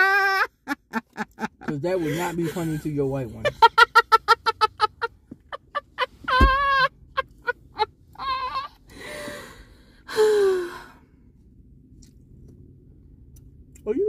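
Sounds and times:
person laughing heartily: 0.0 - 8.8.

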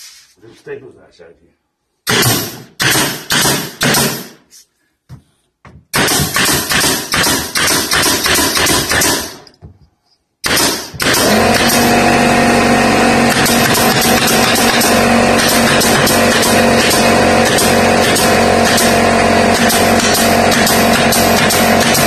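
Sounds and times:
pneumatic staple gun firing: 2.1 - 4.4, 5.9 - 9.5, 10.4 - 12.0, 13.3 - 22.0.

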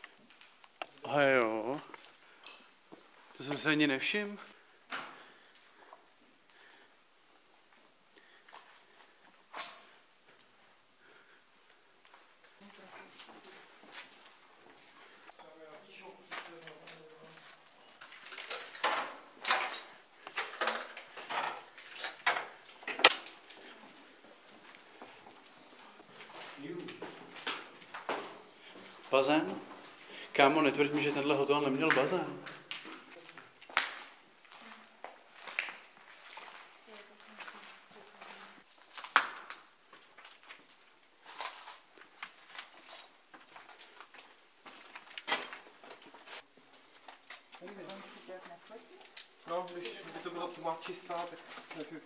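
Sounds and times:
footsteps crunching over debris: 30.9 - 38.9, 39.9 - 47.9.

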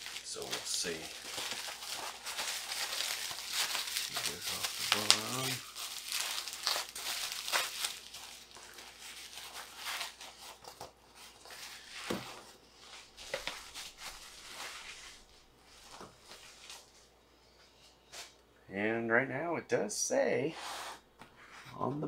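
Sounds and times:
bubble wrap crinkling: 0.0 - 17.0.

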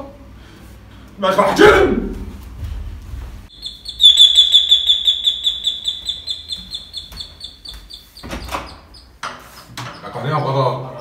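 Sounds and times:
electronic doorbell warble: 3.6 - 7.0.

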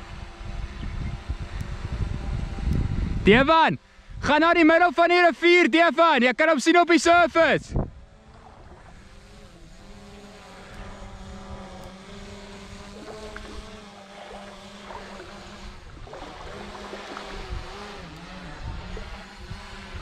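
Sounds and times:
wind buffeting microphone: 0.0 - 3.5, 7.6 - 20.0
outboard motor running: 0.0 - 5.8, 7.4 - 20.0.

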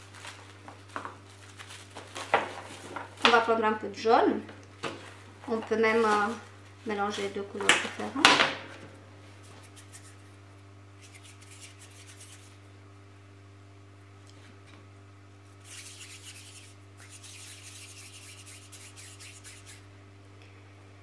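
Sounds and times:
faint electrical hum: 0.0 - 21.0
hands rubbing sugarpaste: 9.4 - 10.3, 11.0 - 12.6, 15.5 - 19.8.

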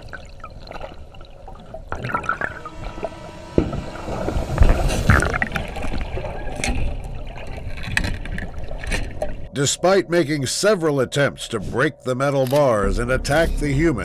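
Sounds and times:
water churning and bubbling: 0.0 - 10.1.

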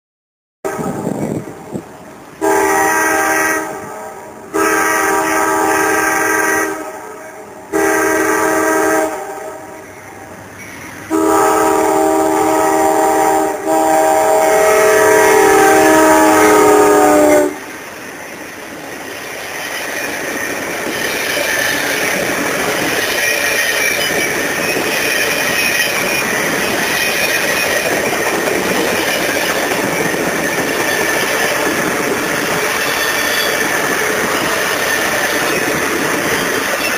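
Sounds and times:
train wheels on rail: 0.7 - 36.9
locomotive air horn blasts: 2.4 - 9.7, 11.1 - 17.6.

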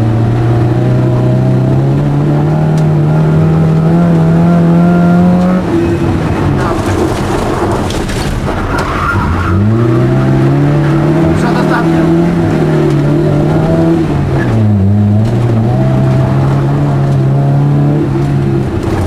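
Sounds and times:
car engine accelerating: 0.0 - 19.0
tyres on gravel: 6.5 - 9.5.

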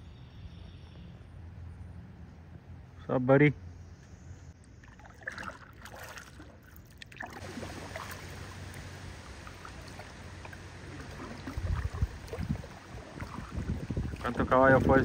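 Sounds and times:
paddles dipping and splashing: 4.6 - 15.0
water running along hull: 4.7 - 15.0.

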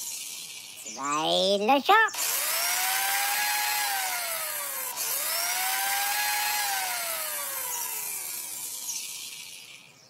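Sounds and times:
drill whirring hiss: 2.2 - 9.1.

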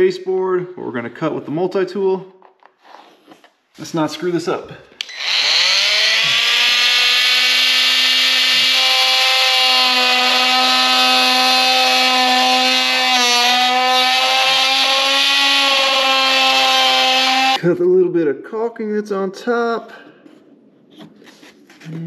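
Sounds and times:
oscillating multi-tool cutting wood: 5.0 - 17.6.

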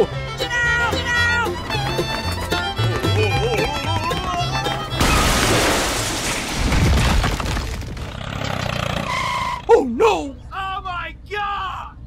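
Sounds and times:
loud crash and breaking: 5.0 - 8.2.

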